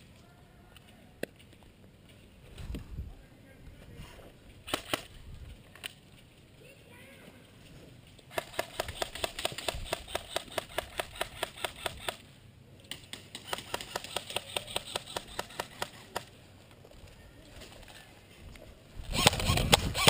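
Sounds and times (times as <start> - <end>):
airsoft gun firing: 4.7 - 5.1, 8.3 - 12.2, 12.9 - 16.3, 19.1 - 20.0.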